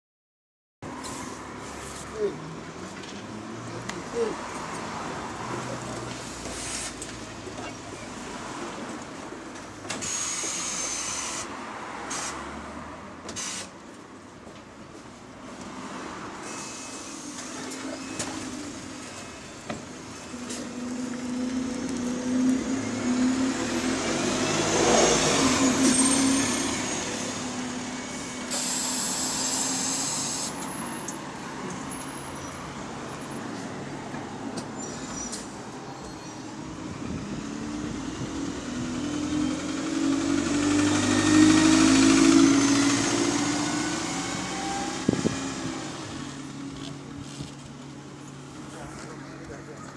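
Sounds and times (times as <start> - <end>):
road traffic: 0.8 - 49.9
bus engine pulling away: 15.8 - 49.9
large vehicle passing: 20.2 - 28.5, 36.6 - 47.1.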